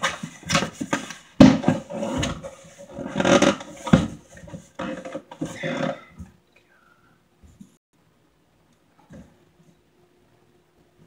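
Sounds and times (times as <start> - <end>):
cardboard scraping and rustling: 0.0 - 6.1.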